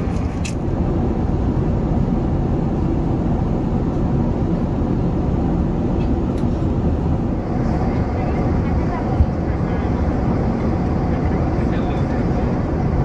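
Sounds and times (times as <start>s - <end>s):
airplane cabin rumble: 0.0s - 13.0s.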